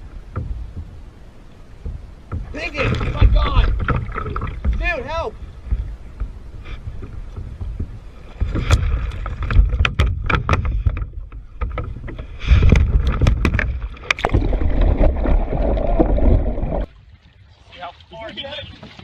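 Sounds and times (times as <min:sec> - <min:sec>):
low rumble on microphone: 0:00.0 - 0:17.3
water splashing beside kayak: 0:00.0 - 0:19.0
knocks against kayak hull: 0:00.2 - 0:01.0, 0:01.8 - 0:15.1.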